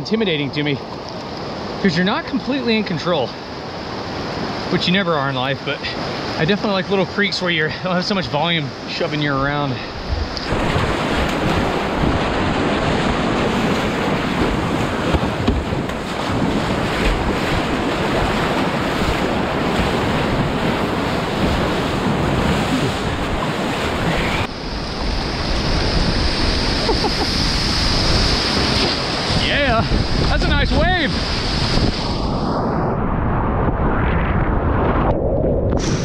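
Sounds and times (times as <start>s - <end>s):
wind buffeting microphone: 9.4s - 36.0s.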